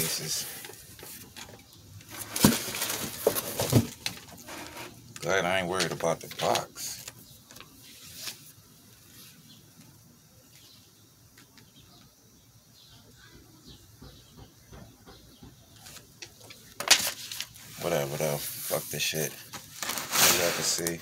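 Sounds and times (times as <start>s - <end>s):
paper rustling and crinkling: 0.0s - 5.0s, 5.8s - 9.4s, 15.8s - 21.0s.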